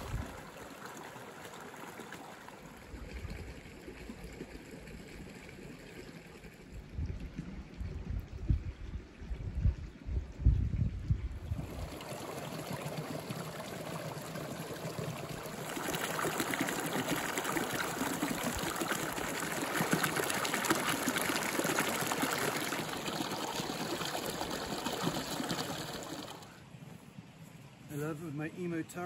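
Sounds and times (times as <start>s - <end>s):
water rushing and splashing: 0.0s - 7.8s, 11.4s - 26.6s.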